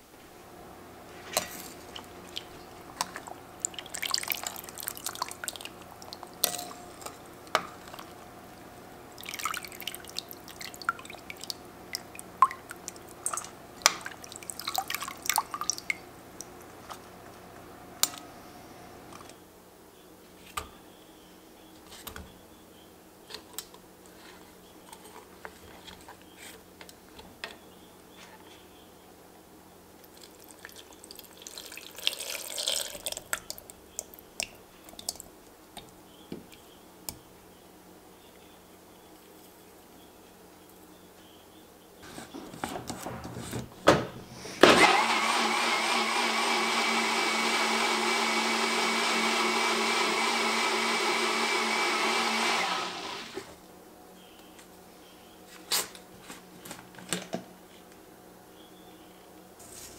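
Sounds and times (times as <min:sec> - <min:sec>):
liquid dripping and splashing: 0:01.8 - 0:07.2, 0:09.1 - 0:16.7, 0:30.1 - 0:35.3.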